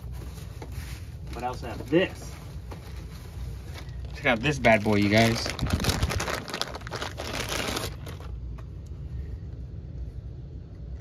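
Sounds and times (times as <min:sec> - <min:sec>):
plastic bag crinkling: 0:01.2 - 0:08.4.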